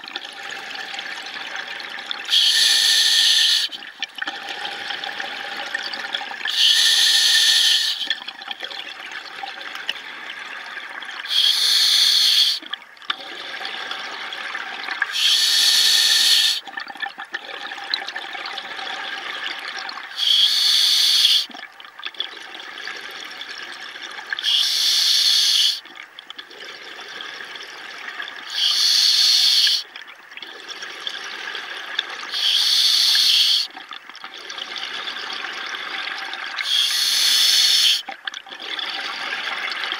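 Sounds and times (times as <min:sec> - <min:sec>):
regulator hiss: 0:02.3 - 0:03.8, 0:06.5 - 0:08.0, 0:11.3 - 0:12.6, 0:15.1 - 0:16.6, 0:20.2 - 0:21.5, 0:24.4 - 0:25.8, 0:28.5 - 0:29.8, 0:32.3 - 0:33.7, 0:36.7 - 0:38.0.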